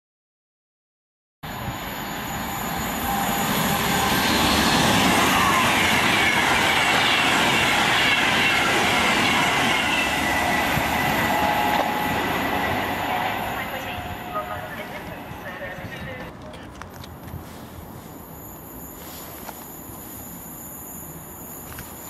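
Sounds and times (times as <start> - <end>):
whining tones from train: 1.4 - 16.7
electric train passing at speed: 1.4 - 22.0.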